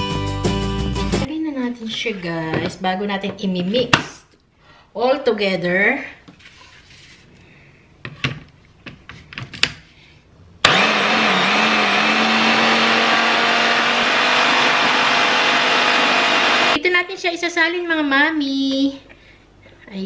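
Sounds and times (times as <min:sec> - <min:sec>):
food processor motor whining: 0:10.6 - 0:16.8.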